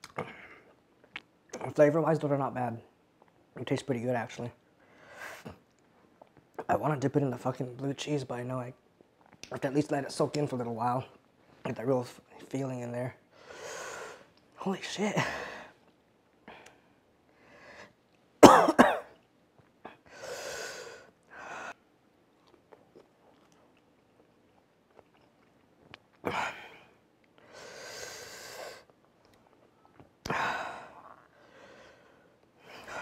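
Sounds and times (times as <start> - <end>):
man coughing: 18.4 - 19.2
man breathing hard: 26.3 - 28.9, 30.3 - 33.0.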